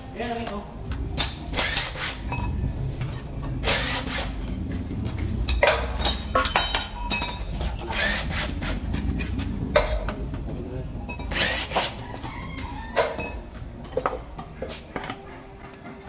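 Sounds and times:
harsh tool bursts: 1.5s - 2.2s, 3.6s - 4.4s, 7.9s - 8.7s, 11.3s - 12.0s
steady low rumble: 2.3s - 7.8s
metallic ringing: 5.1s - 7.9s.

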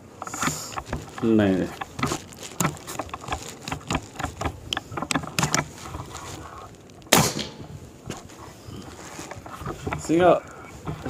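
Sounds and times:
air rifle action clicks: 0.2s - 8.2s
loud sharp bang: 7.1s - 7.7s.

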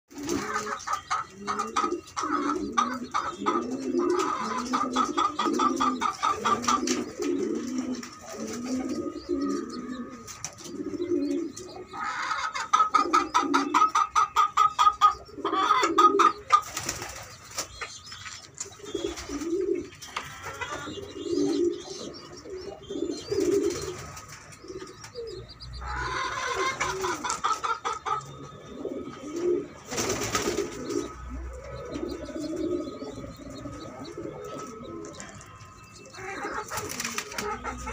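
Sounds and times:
pigeon cooing: 0.1s - 37.9s
squabs squeaky begging calls: 0.4s - 7.1s, 18.4s - 28.5s.

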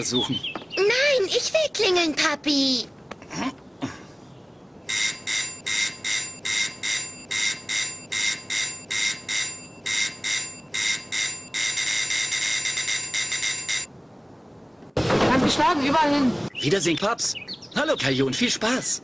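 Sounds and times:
electric doorbell ringing: 4.9s - 13.9s.

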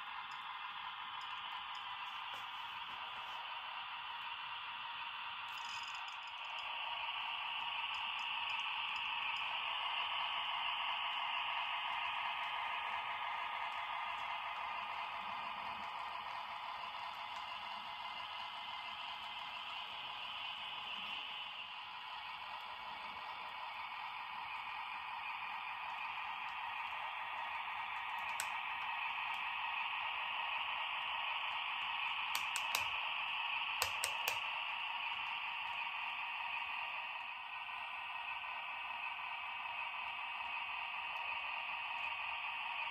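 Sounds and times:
model train whirring on track: 0.0s - 42.9s
light clicks: 32.4s - 33.0s, 33.8s - 34.4s.

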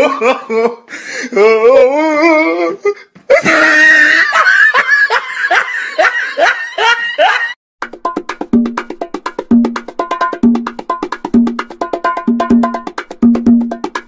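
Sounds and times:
wavering laugh: 0.0s - 1.8s, 3.3s - 7.6s.

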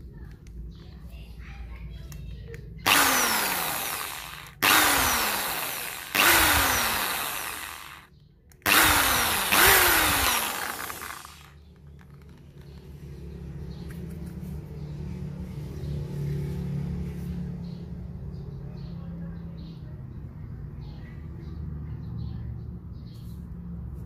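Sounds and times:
electric drill whining: 2.9s - 11.6s.

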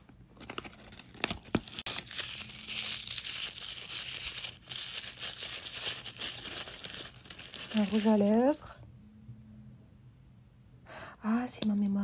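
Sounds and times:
packaging crinkling and rustling: 0.0s - 8.8s.

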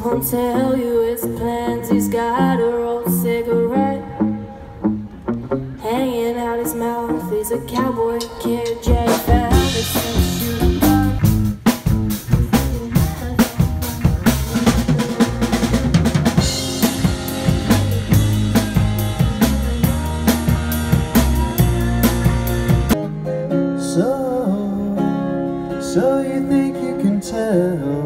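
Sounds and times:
bass guitar: 0.0s - 6.1s, 6.9s - 28.0s
electric guitar: 0.0s - 28.0s
drum kit beat: 8.2s - 23.0s.

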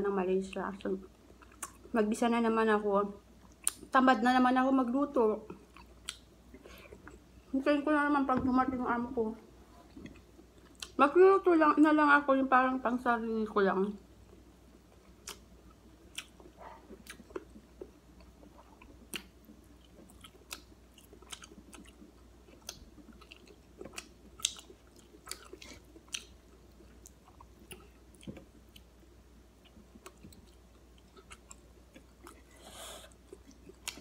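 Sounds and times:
person chewing food: 1.2s - 1.9s, 5.5s - 7.4s, 9.8s - 11.0s, 14.3s - 29.0s, 29.6s - 34.0s.

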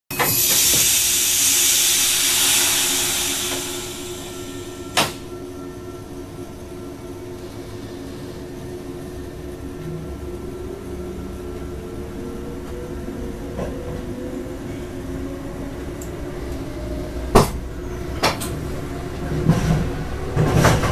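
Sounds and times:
train electric hum and whine: 0.1s - 20.9s
loud hiss: 0.2s - 5.3s
low rumble: 0.9s - 5.4s.

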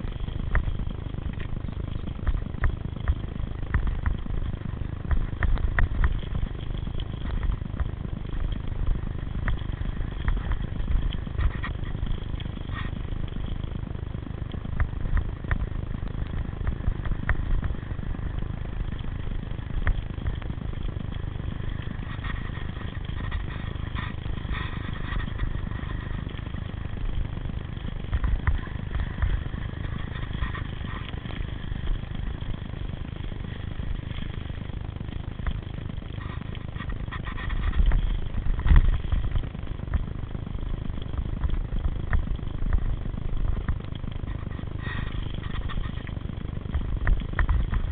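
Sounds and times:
bicycle tyres rumbling on dirt: 0.0s - 47.9s
bikes rattling and knocking: 0.0s - 47.9s
wind on microphone: 0.0s - 47.9s.

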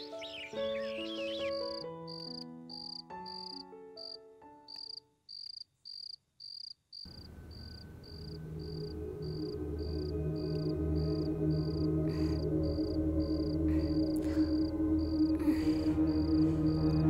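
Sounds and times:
crickets chirping: 0.8s - 17.0s
low droning background music: 7.1s - 17.0s
melody of held notes: 7.3s - 17.0s.

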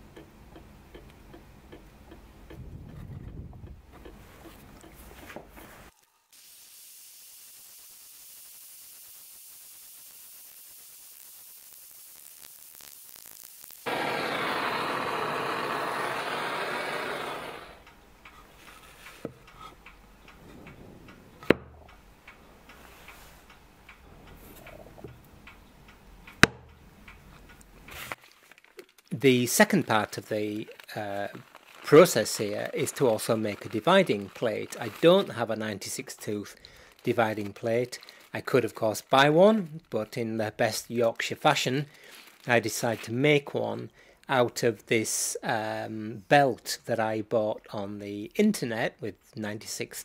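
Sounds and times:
gas torch flame hissing: 6.4s - 21.6s
sharp clicks: 17.8s - 27.9s.

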